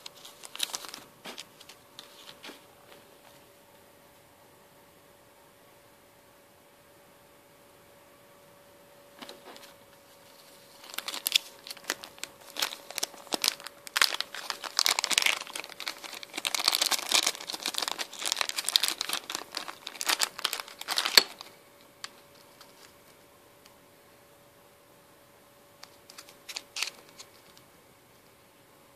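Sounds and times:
plastic bags crinkling: 0.0 - 2.4, 10.3 - 21.6, 25.8 - 27.6.

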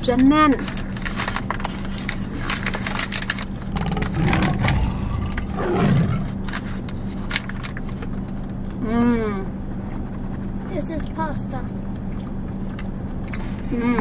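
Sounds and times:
paper wrapper crinkling: 0.6 - 5.5, 6.3 - 8.1
person chewing: 3.6 - 6.3
car engine hum: 3.6 - 6.8.

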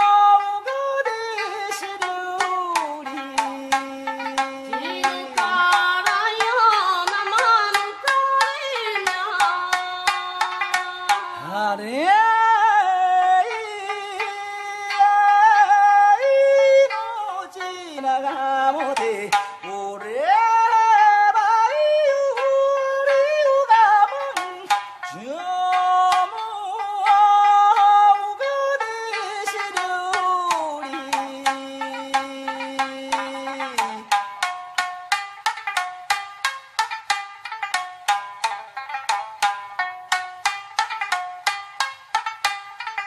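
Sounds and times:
sliding pitch melody: 3.2 - 6.2.

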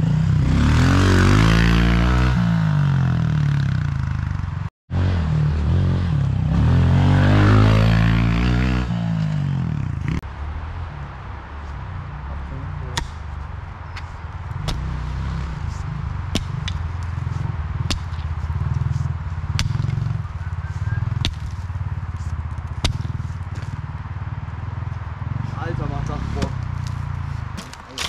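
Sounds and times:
pickaxe striking dirt: 12.9 - 23.8, 26.4 - 28.0.

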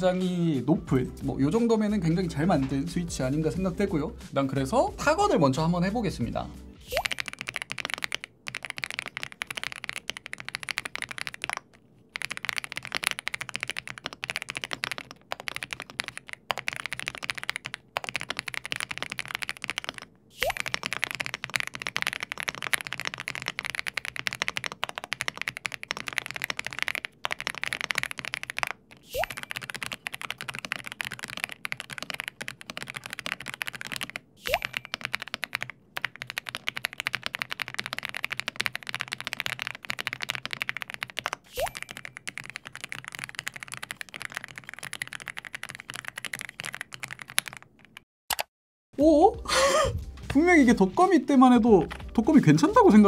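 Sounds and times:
fast typing on mechanical keyboard: 6.9 - 48.1.

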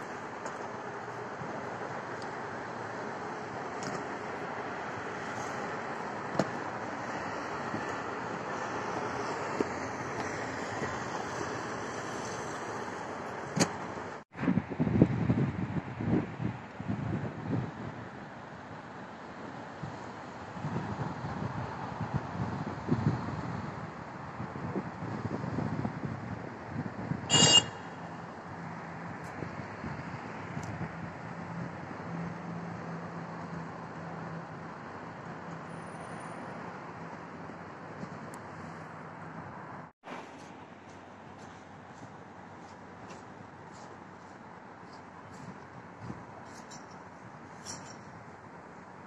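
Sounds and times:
car road and engine noise: 0.0 - 49.0
wind buffeting microphone: 14.3 - 18.1, 19.8 - 27.6.

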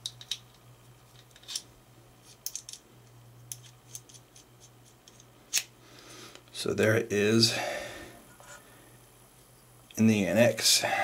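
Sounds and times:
metallic clicks and scrapes of lock: 1.2 - 1.7.

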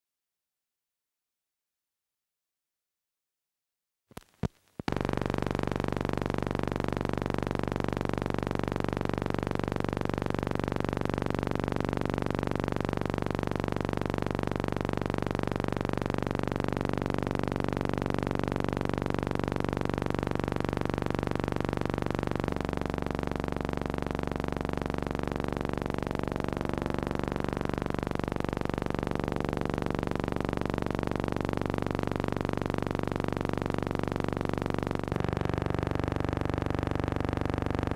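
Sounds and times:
layered low drone: 25.6 - 37.9.

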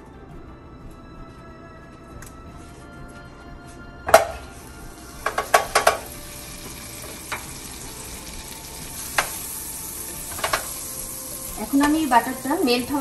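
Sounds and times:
butter knocking into pan: 4.1 - 4.4, 5.2 - 8.0, 10.2 - 10.8
butter sizzling: 4.1 - 13.0
spatula clicking against pan: 10.3 - 10.8.

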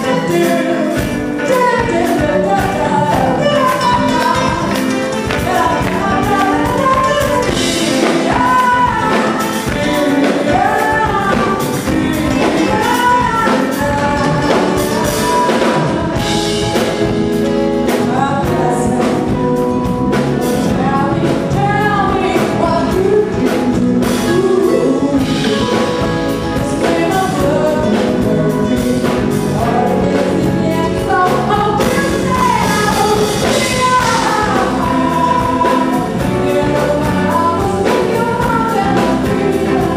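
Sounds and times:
drum kit beat: 0.0 - 39.9
electric guitar: 0.0 - 39.9
keyboards: 0.0 - 39.9
woman singing: 0.0 - 39.9.

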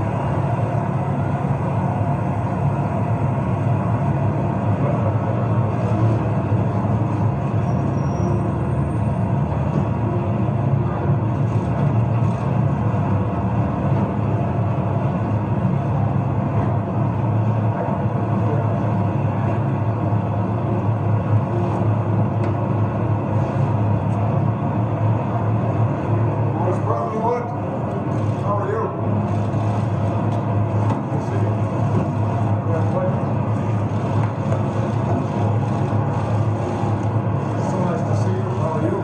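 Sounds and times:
engines idling: 0.0 - 39.0.

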